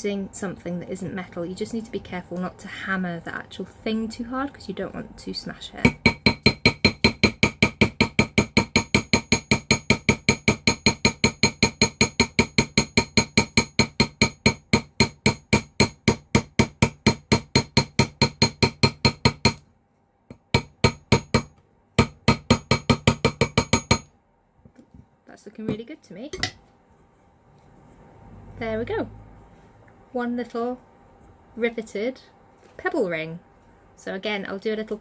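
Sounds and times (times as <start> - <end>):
hammer tapping metal rivet: 5.9 - 19.6, 20.3 - 24.1.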